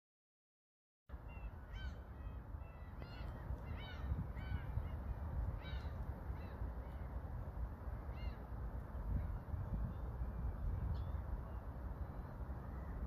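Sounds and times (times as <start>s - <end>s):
birds calling: 1.2s - 7.2s.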